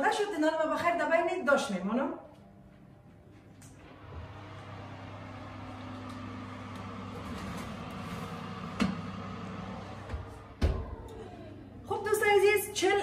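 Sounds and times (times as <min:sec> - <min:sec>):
electric oven humming: 0:02.4 - 0:13.0
oven fan: 0:03.6 - 0:13.0.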